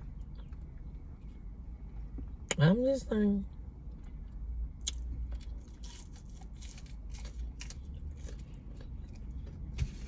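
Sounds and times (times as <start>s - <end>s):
steady low hum: 0.0s - 10.0s
crunchy chewing: 3.9s - 10.0s.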